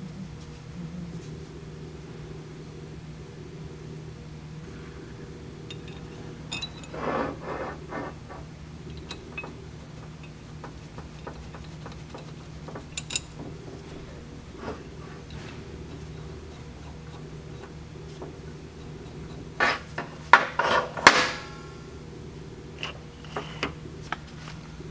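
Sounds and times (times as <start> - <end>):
steady low hum: 0.0 - 24.9
steel shaft scraping: 5.7 - 21.0.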